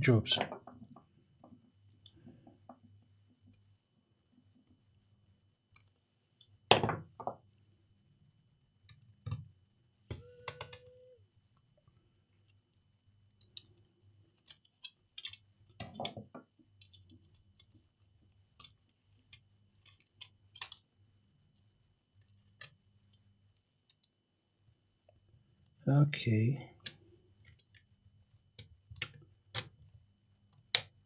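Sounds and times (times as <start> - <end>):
laptop parts clicking and knocking: 10.1 - 10.9, 14.4 - 17.6.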